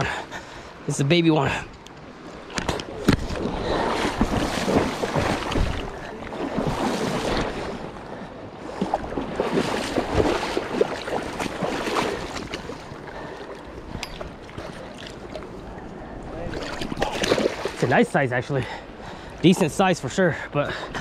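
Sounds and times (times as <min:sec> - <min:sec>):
splashing in shallow water: 0:02.3 - 0:08.0, 0:08.6 - 0:15.8, 0:16.4 - 0:18.0.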